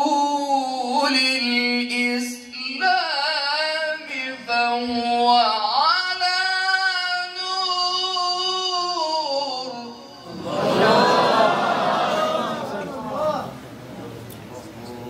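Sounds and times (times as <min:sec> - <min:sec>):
man reciting melodically: 0:00.0 - 0:11.1.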